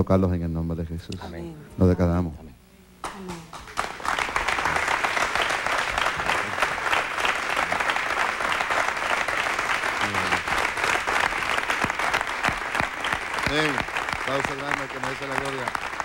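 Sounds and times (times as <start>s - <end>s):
audience applauding: 3.3s - 16.0s.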